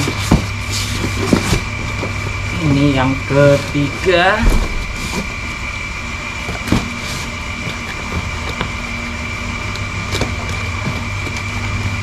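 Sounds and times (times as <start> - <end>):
mechanical hum: 0.0 - 12.0
high even whine: 3.8 - 8.0.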